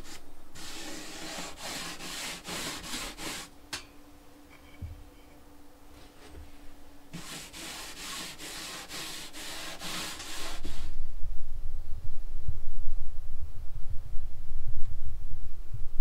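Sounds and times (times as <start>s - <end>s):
rubbing strokes on wood: 0.0s - 3.5s, 7.1s - 11.0s
low rumble: 10.9s - 16.0s.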